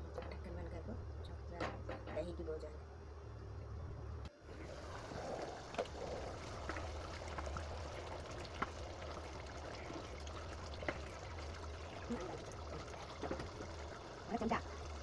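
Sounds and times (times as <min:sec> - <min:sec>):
gravy bubbling and hissing: 0:04.3 - 0:15.0.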